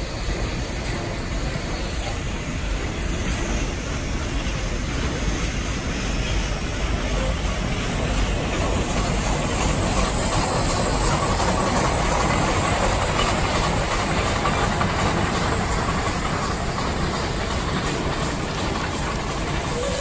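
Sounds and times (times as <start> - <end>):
steady hiss of steam: 0.0 - 20.0
train cars rolling slowly: 0.0 - 20.0.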